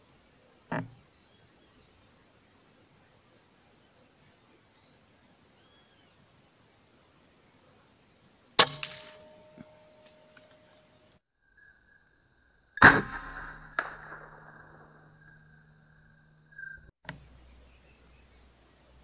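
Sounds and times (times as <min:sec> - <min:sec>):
insects chirring: 0:00.0 - 0:13.0, 0:13.9 - 0:19.0
whistled bird calls: 0:01.0 - 0:01.9, 0:05.5 - 0:06.2
rifle shot: 0:08.6 - 0:09.6.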